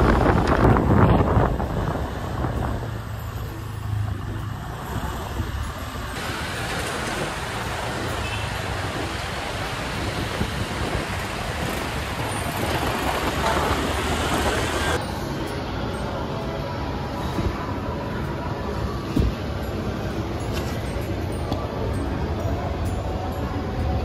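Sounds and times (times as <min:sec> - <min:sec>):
wind rushing past microphone: 0:00.0 - 0:03.2, 0:06.2 - 0:15.0
city traffic: 0:00.0 - 0:24.0.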